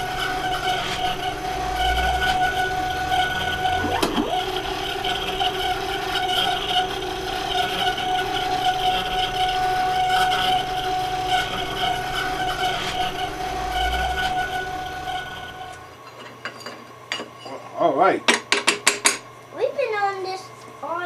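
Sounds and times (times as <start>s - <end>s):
milling machine whining: 0.0s - 16.6s
end mill cutting metal: 0.0s - 16.7s.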